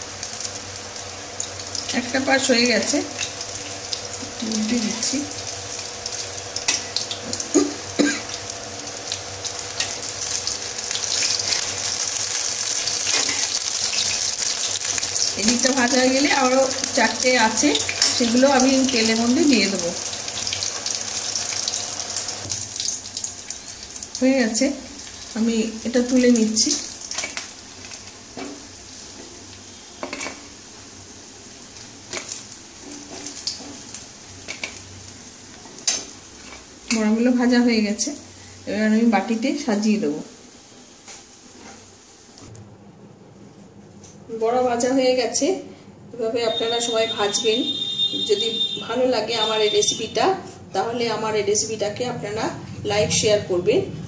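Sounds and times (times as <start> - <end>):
fritters sizzling in oil: 0.0 - 42.4.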